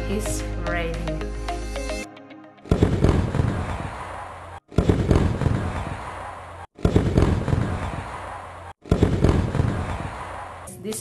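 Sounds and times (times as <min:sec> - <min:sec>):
fireworks crackling bangs: 0:02.7 - 0:03.8, 0:04.7 - 0:06.0, 0:06.8 - 0:08.1, 0:08.8 - 0:10.4.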